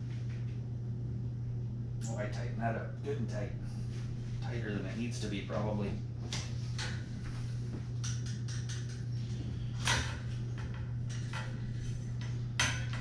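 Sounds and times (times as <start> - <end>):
steady low hum: 0.0 - 13.0
bicycle wheel clicks and knocks: 8.0 - 9.0.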